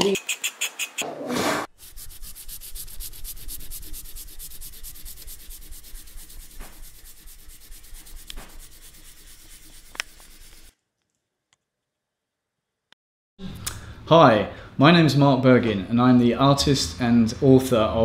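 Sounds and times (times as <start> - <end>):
drawing stick scribbling on paper: 1.8 - 10.7.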